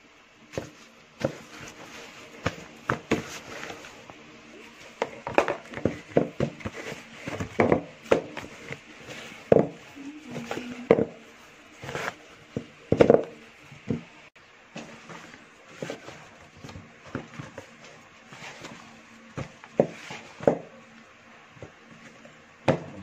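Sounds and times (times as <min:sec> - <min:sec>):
dough thudding in plastic basin: 0:05.0 - 0:08.8, 0:11.9 - 0:14.1, 0:22.6 - 0:23.0.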